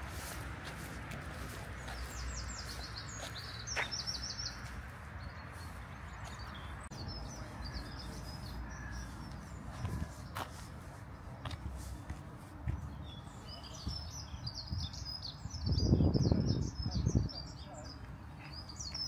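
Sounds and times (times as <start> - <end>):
small songbird singing: 1.8 - 10.7, 12.8 - 19.0.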